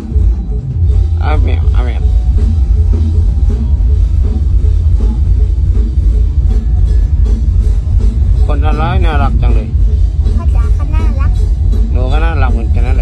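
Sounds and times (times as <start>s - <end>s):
loud music with heavy bass: 10.3s - 11.4s.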